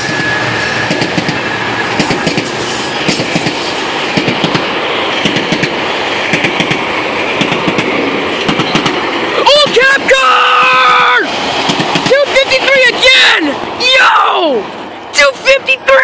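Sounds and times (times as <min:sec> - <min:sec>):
train wheel clacks: 0:00.0 - 0:09.8, 0:10.7 - 0:13.4
train rolling past: 0:00.0 - 0:16.0.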